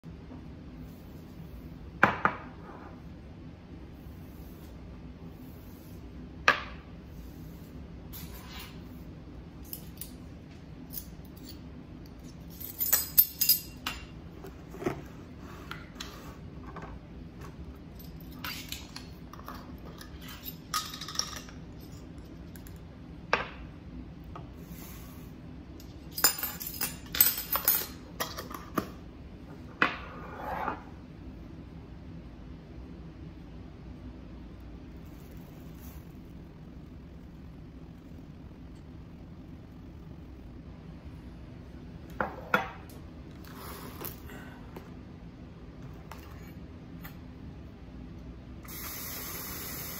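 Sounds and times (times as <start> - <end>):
steady low hum: 0.0 - 49.9
spoons and jars clinking on countertop: 18.0 - 22.0, 25.8 - 28.7.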